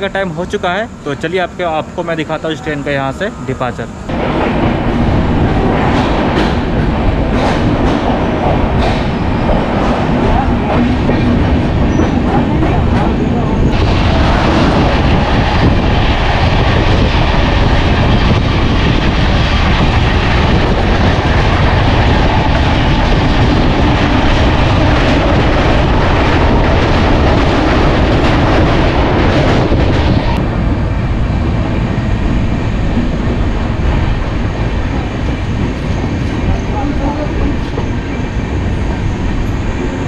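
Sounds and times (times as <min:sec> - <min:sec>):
train rumbling on rails: 0:00.0 - 0:40.0
train wheel clatter: 0:04.2 - 0:30.4.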